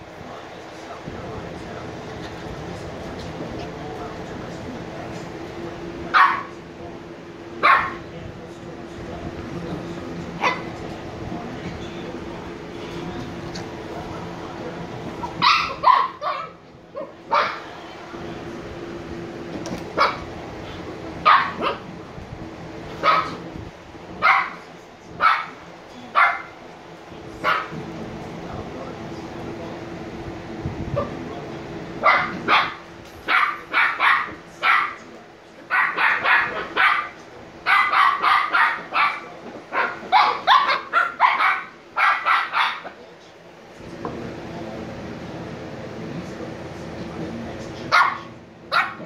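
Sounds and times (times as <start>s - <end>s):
puppies barking: 6.1s - 6.6s, 7.5s - 8.1s, 10.3s - 10.9s, 15.1s - 17.8s, 19.8s - 22.0s, 22.9s - 23.5s, 24.1s - 26.6s, 27.4s - 27.9s, 32.0s - 43.0s, 47.9s - 49.0s.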